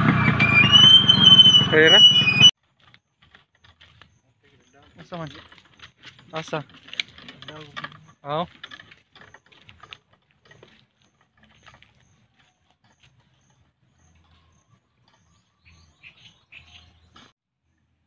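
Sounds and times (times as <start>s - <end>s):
short high chirp: 0.2s - 2.5s
footsteps on dirt path: 2.6s - 17.1s.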